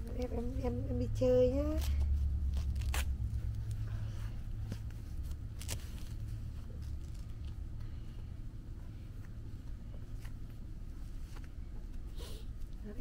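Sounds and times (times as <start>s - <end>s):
steady low hum: 0.0s - 13.0s
diaper rustling and crackling: 1.5s - 7.7s.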